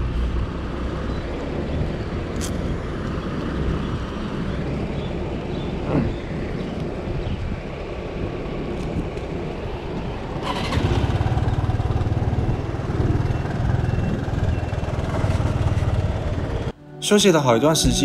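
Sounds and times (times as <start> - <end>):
scooter engine idling: 10.4 - 16.7
scooter starter whir: 10.4 - 16.7.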